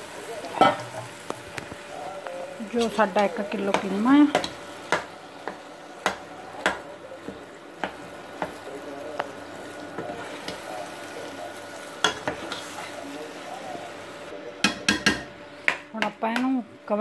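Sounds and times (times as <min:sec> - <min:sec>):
low sizzle: 0:00.0 - 0:17.0.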